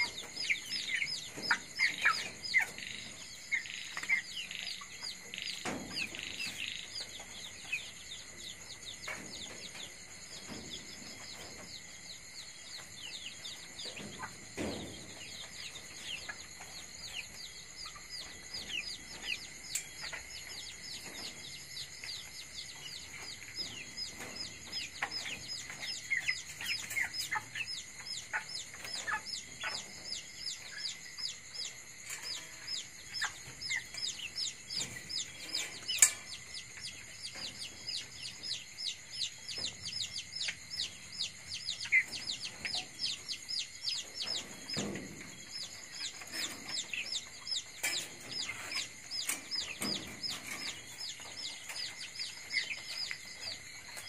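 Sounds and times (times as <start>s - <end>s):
chicken clucking: 0.0s - 54.0s
chicks peeping: 0.0s - 54.0s.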